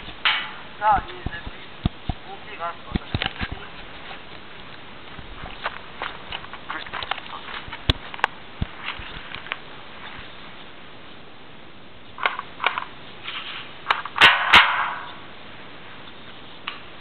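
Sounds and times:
footsteps crunching dry leaves: 2.8s - 10.6s
twigs snapping: 5.4s - 9.6s
loud rustles: 13.2s - 15.1s.

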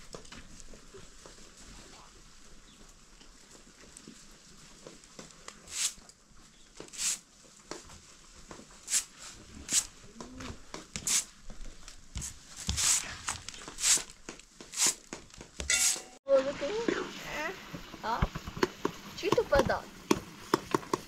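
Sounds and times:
broom swishing on concrete: 5.6s - 6.1s, 6.8s - 7.4s, 8.7s - 10.1s, 11.0s - 11.4s, 12.2s - 16.2s.

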